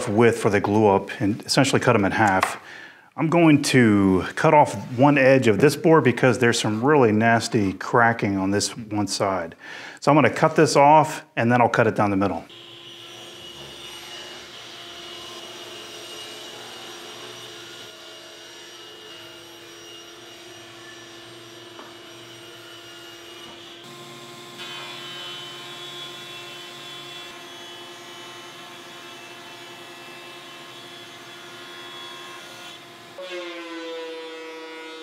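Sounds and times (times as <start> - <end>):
table saw ripping wood: 12.5 - 35.0.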